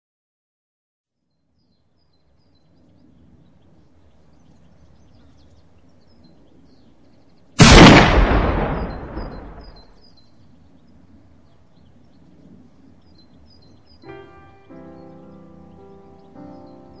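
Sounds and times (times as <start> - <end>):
loud explosion: 7.6 - 9.9.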